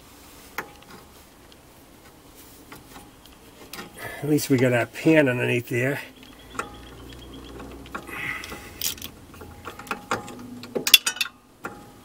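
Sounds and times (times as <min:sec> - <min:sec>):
ratchet wrench clicking: 0:06.5 - 0:11.8.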